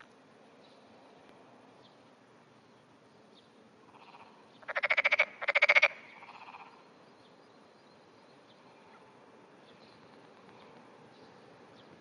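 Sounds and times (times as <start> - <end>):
frog croaking: 3.9 - 6.8.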